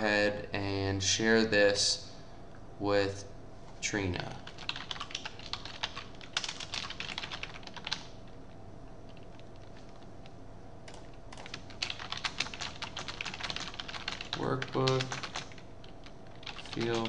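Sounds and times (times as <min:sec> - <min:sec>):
typing on keyboard: 0:04.4 - 0:08.1, 0:10.9 - 0:17.0.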